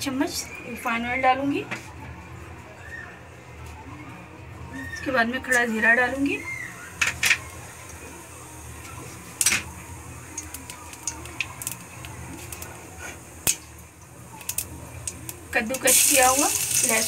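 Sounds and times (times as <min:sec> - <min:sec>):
seeds popping in hot oil: 0:13.4 - 0:13.8, 0:14.4 - 0:17.0.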